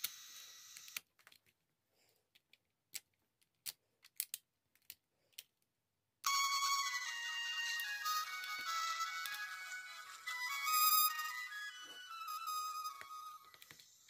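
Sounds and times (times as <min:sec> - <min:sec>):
tinny music from toy speaker: 0:06.2 - 0:14.0.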